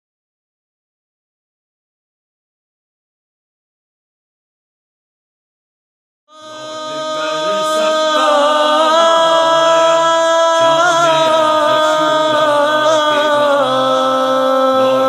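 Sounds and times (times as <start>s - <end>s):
wordless vocal chorus: 6.3s - 15.0s.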